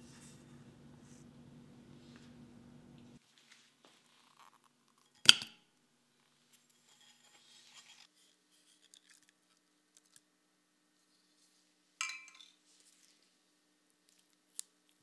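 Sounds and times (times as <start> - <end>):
faint scraping in a bowl: 6.8 - 8.4
glass bowl clink: 12.0 - 12.6.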